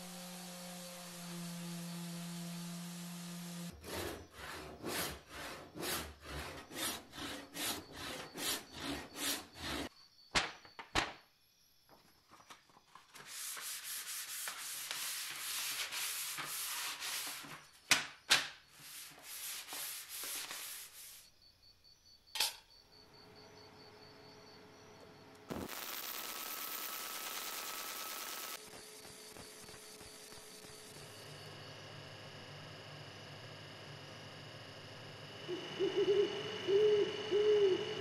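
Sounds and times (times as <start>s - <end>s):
power sander humming: 0.0s - 3.8s
handsaw cutting wood: 0.0s - 9.9s
sandpaper rubbing on wood: 13.3s - 17.4s, 18.8s - 21.2s.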